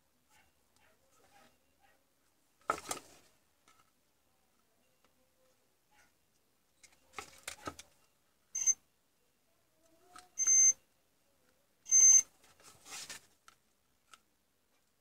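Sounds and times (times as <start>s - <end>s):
multimeter continuity beeps: 8.6s - 8.8s, 10.4s - 10.8s, 11.9s - 12.3s.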